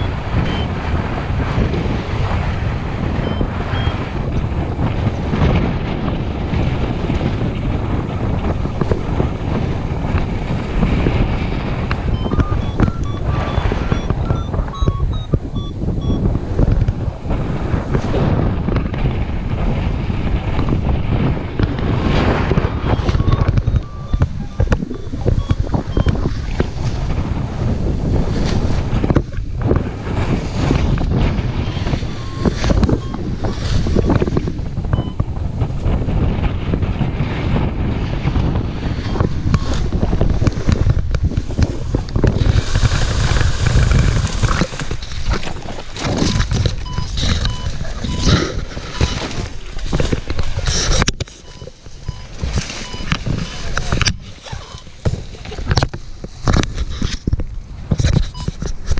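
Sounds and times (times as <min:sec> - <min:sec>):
strong wind buffeting microphone: 0:00.0 - 0:58.9
grass and branches rustling: 0:38.9 - 0:58.9.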